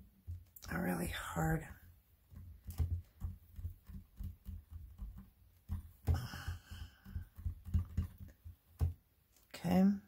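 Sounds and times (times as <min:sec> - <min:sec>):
soft thumps of fingers tapping clay: 0:02.2 - 0:09.1.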